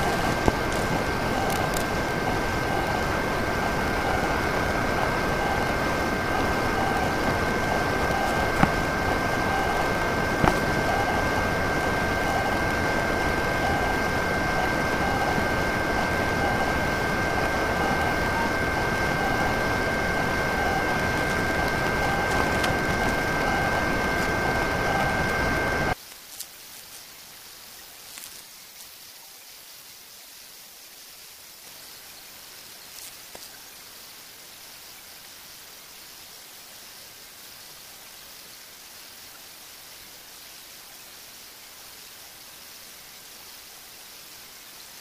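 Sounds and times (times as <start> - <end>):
high whine: 0.0 - 26.0
printer whirring hiss: 0.0 - 26.0.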